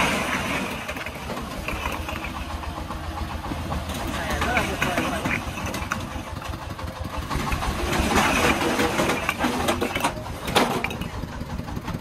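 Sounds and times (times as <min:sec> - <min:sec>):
bricks clattering onto pile: 0:00.0 - 0:02.5, 0:04.0 - 0:06.3, 0:07.4 - 0:11.2
diesel engine chugging: 0:00.0 - 0:12.0.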